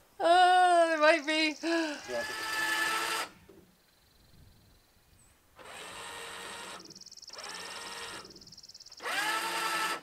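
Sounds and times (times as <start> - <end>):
motorized camper jacks running: 5.6 - 8.4, 9.0 - 10.0.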